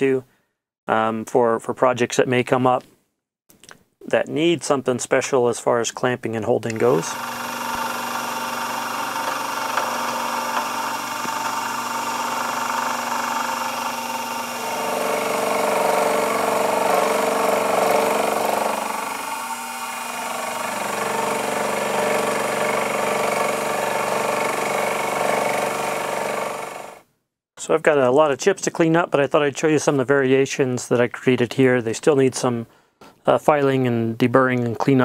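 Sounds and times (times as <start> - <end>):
end mill cutting metal: 6.7 - 27.0
milling machine motor whine: 6.8 - 27.0.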